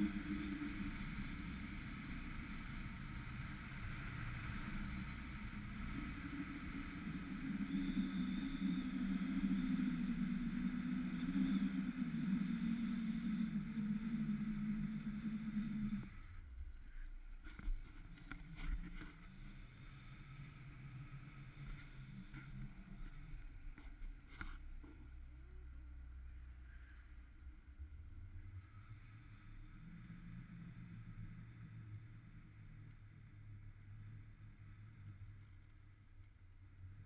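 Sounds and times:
thin high whine: 0:00.0 - 0:27.2.

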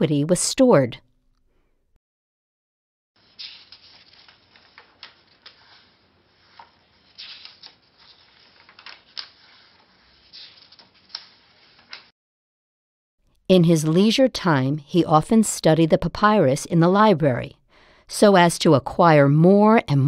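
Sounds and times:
paper rustling and crackling: 0:03.2 - 0:12.1.

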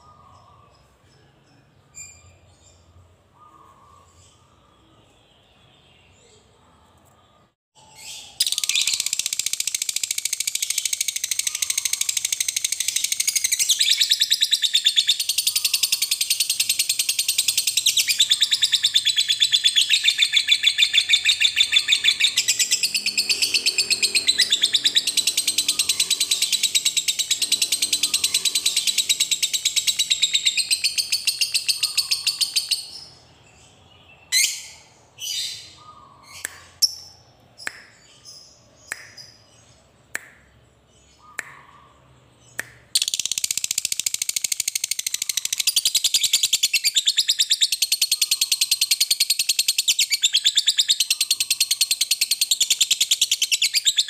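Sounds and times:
short bird chirps: 0:06.3 - 0:33.2
lovebird chattering trill: 0:08.4 - 0:33.1, 0:43.0 - 0:54.0.

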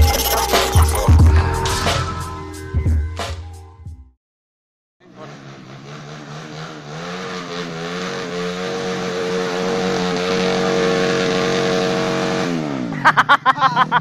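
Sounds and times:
motorcycle engine revving: 0:05.0 - 0:14.0.

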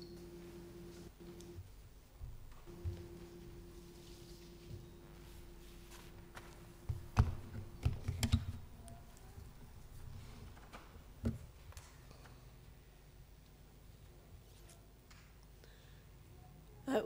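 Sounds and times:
knocks on wooden pulpit: 0:06.9 - 0:08.3.

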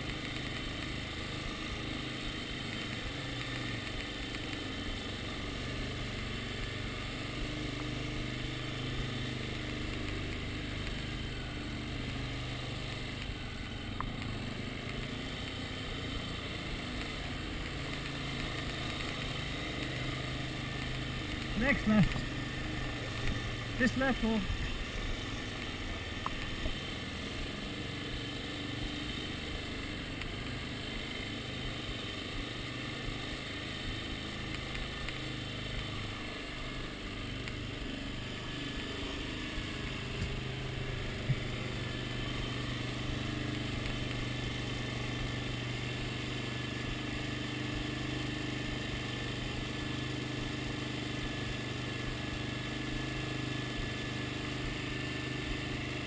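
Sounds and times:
dirt bike engine running: 0:00.0 - 0:56.0
sharp click: 0:09.6 - 0:11.0, 0:20.8 - 0:22.4.

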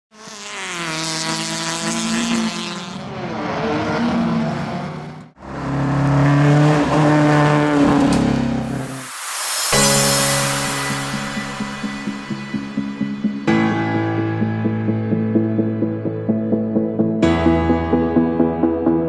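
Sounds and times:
rally car engine revving: 0:00.2 - 0:09.0
tyres hissing: 0:08.5 - 0:13.1.

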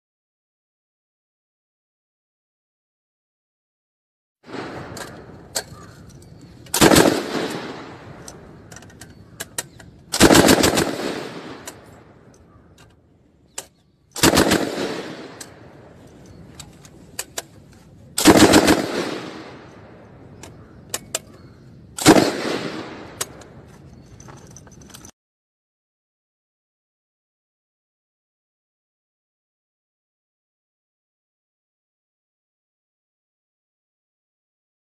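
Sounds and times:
gunfire echo: 0:04.5 - 0:05.5, 0:06.7 - 0:08.4, 0:10.1 - 0:12.2, 0:14.2 - 0:15.8, 0:18.2 - 0:20.0, 0:22.0 - 0:23.4
machine gun bursts: 0:06.7 - 0:07.8, 0:10.2 - 0:11.8, 0:14.2 - 0:15.4, 0:18.2 - 0:19.4, 0:22.0 - 0:22.8.

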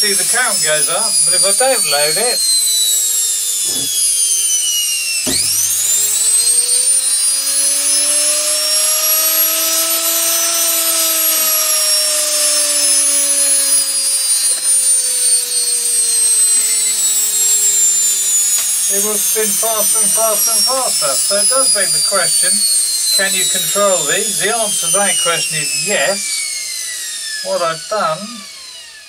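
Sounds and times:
washing machine motor whining: 0:00.0 - 0:29.0.

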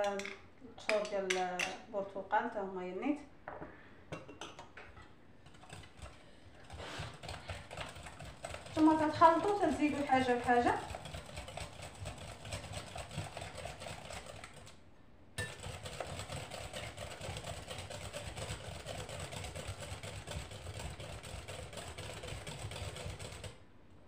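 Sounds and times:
whisk beating batter in bowl: 0:04.9 - 0:14.8, 0:15.4 - 0:23.6.

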